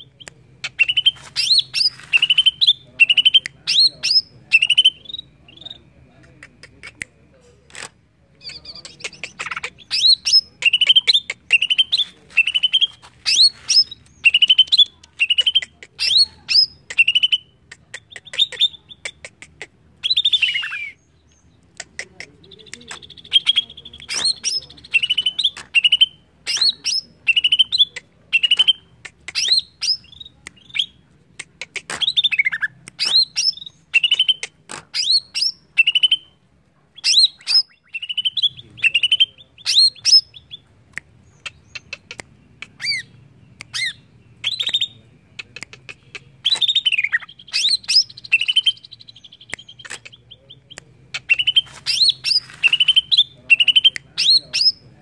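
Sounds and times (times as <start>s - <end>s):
bird singing whistled song: 23.0s - 28.8s, 35.0s - 36.4s, 42.8s - 45.1s, 46.4s - 49.8s, 50.6s - 54.8s.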